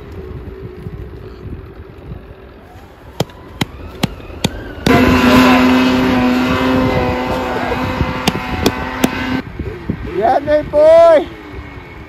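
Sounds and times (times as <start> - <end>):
snowmobile engine at high revs: 3.1 - 11.9.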